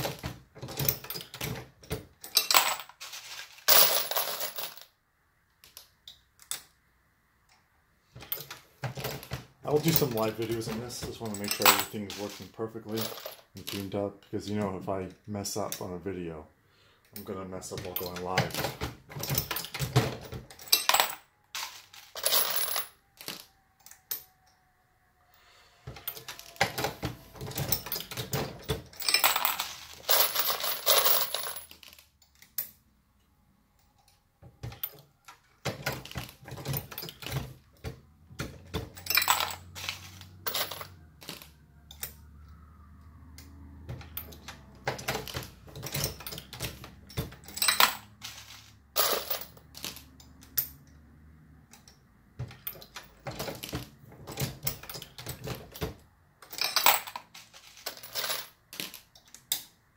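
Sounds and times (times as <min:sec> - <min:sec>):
brass cases clinking: 0:00.0 - 0:04.8, 0:08.2 - 0:14.0, 0:17.2 - 0:23.5, 0:26.0 - 0:32.8, 0:34.6 - 0:42.3, 0:43.9 - 0:50.9, 0:51.8 - 0:59.6.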